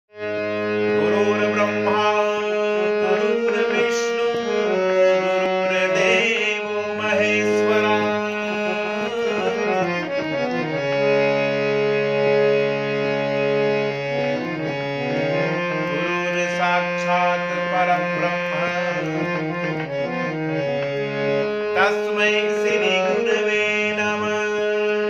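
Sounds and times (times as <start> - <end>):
harmonium playing: 0.1 - 25.0.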